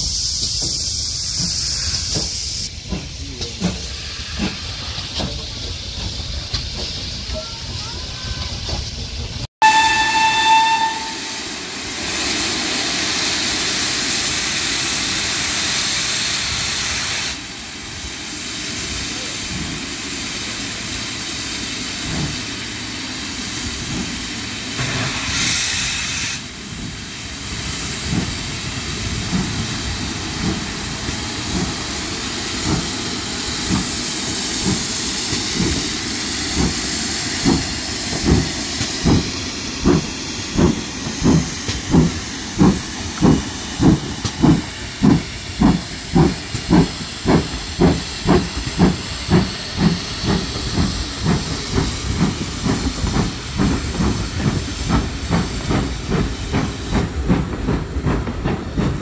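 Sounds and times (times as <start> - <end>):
loud steam hissing: 0.0 - 59.0
steam locomotive whistle: 9.6 - 11.6
locomotive exhaust chuffs: 12.0 - 59.0.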